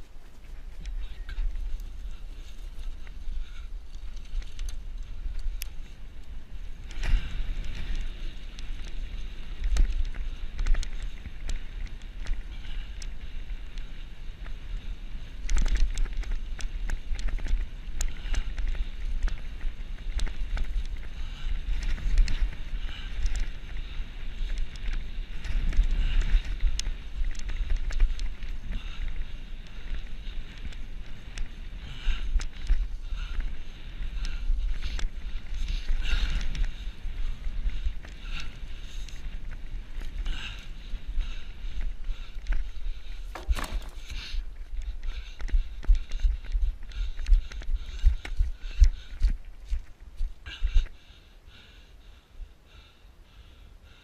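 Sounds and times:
bike knocking and rattling: 0:43.0 - 0:44.4
tyres on dirt: 0:43.2 - 0:44.4.

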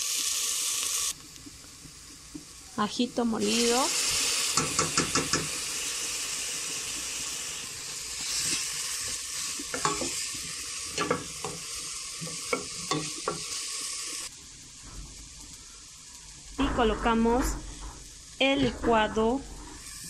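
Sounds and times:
onion sizzling in oil: 0:00.0 - 0:20.0
spoon scraping and knocking pot: 0:09.8 - 0:10.2.

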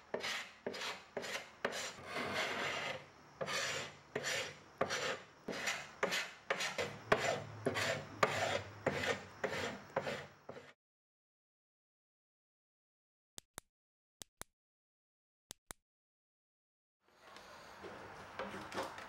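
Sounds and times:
sandpaper rasping on wood: 0:00.1 - 0:10.8.

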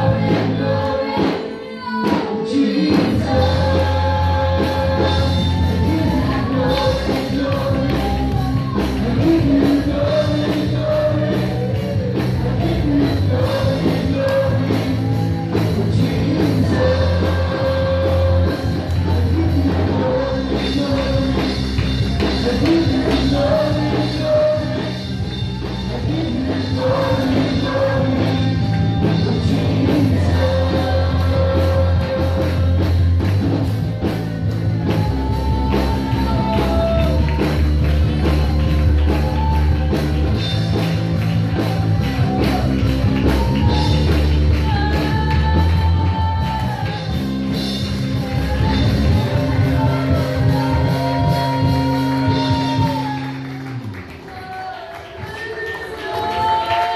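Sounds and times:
youth choir singing in unison: 0:00.0 - 0:11.2, 0:25.9 - 0:32.6
bass and drums accompaniment: 0:00.0 - 0:56.9.

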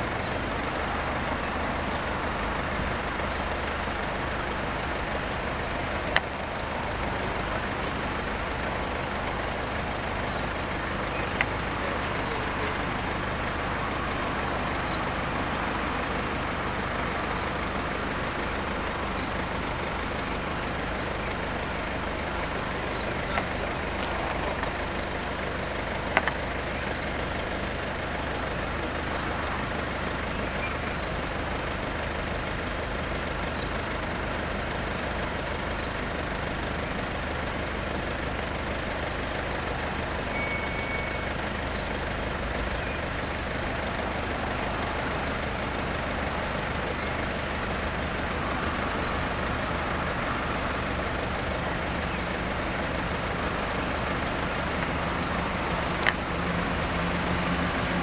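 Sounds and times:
vehicles idling: 0:00.0 - 0:58.0.

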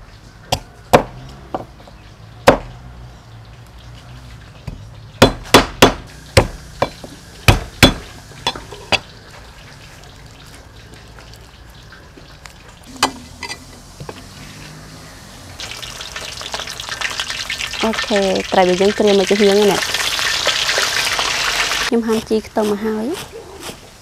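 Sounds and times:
cleaver striking chopping block: 0:05.2 - 0:08.0
oil sizzling in a wok: 0:06.1 - 0:21.9.

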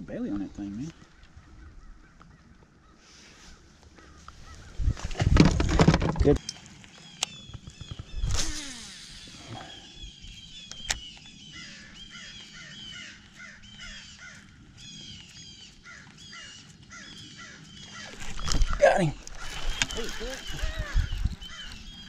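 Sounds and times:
fishing reel squeaking: 0:07.4 - 0:09.6, 0:18.0 - 0:22.0
fishing line cast whir: 0:08.2 - 0:09.8.

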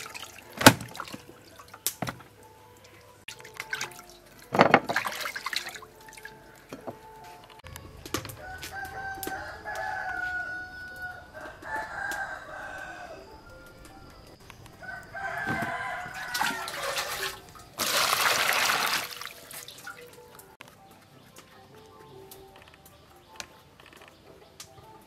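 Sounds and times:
water pouring into plastic bowl: 0:00.0 - 0:01.8, 0:03.3 - 0:06.3, 0:15.4 - 0:20.2
rooster crowing: 0:08.2 - 0:17.9.

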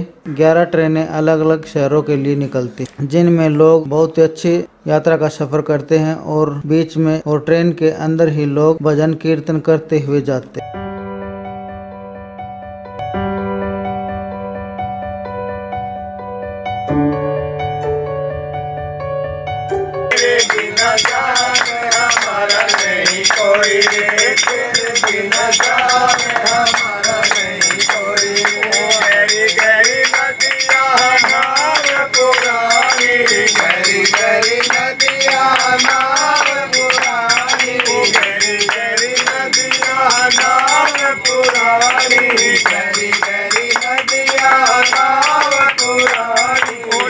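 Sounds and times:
group singing devotional song: 0:20.1 - 0:47.0
hand-clapping: 0:20.1 - 0:47.0
rhythmic beat: 0:20.1 - 0:47.0.

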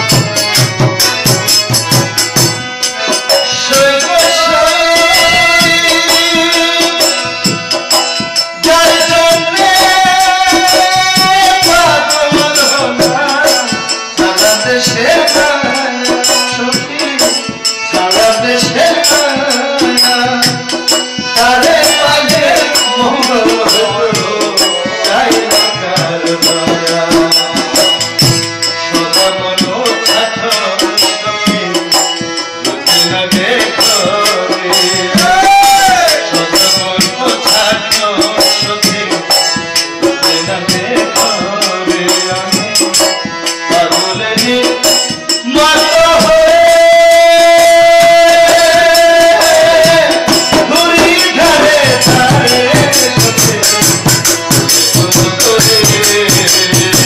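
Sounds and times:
harmonium: 0:00.0 - 0:57.0
man singing into microphone: 0:00.0 - 0:57.0.

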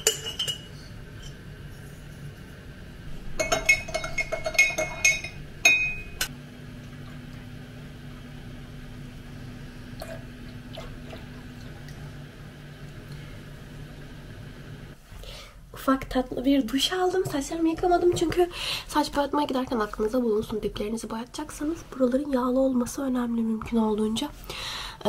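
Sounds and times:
glassware and dishes clinking: 0:00.0 - 0:01.4, 0:03.4 - 0:06.3
faint steady hum: 0:00.0 - 0:25.0.

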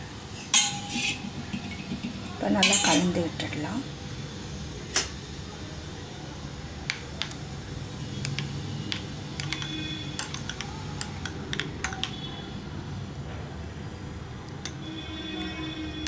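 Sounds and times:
spoon clinking against glass bowl: 0:00.4 - 0:03.2.

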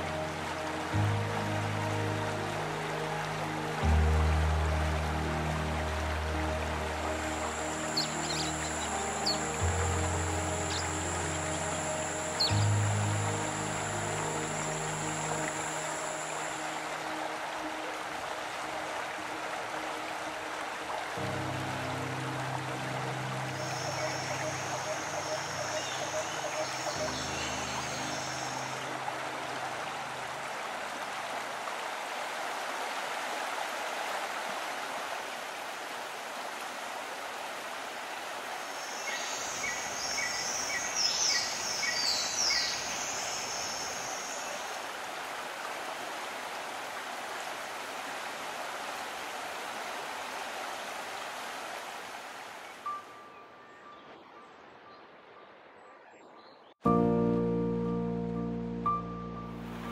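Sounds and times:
stream rushing: 0:00.0 - 0:56.0, 0:56.9 - 0:59.9
small bird singing trills: 0:07.9 - 0:09.4, 0:10.7 - 0:11.7.

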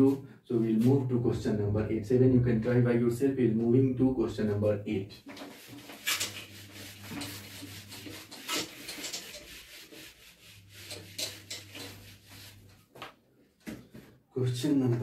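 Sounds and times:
eraser rubbing on whiteboard: 0:05.2 - 0:12.8.

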